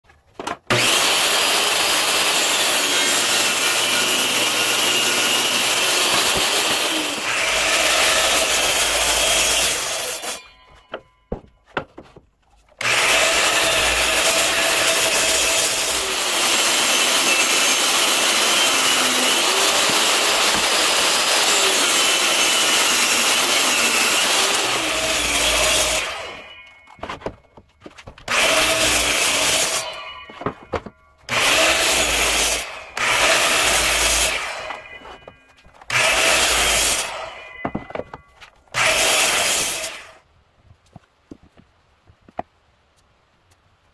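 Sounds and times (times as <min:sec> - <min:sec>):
power saw cutting wood: 0:00.7 - 0:11.1, 0:12.8 - 0:40.2
clicks and knocks: 0:26.6 - 0:28.3, 0:30.3 - 0:31.3.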